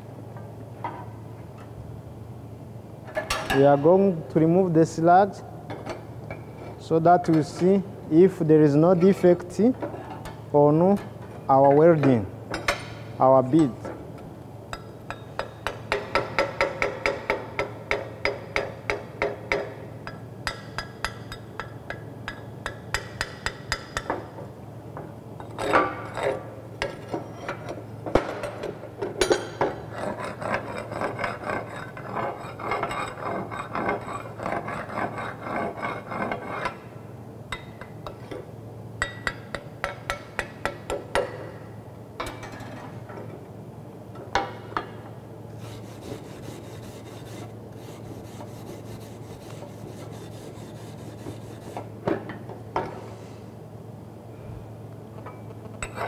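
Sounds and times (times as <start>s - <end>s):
hammer tapping on metal: 14.8s - 24.2s, 39.0s - 41.4s.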